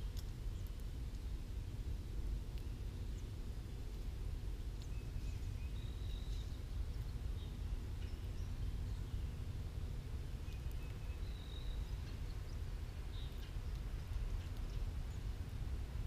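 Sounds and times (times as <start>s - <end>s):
low outdoor rumble: 0.0s - 16.0s
songbird calls: 4.7s - 9.4s, 10.3s - 15.3s.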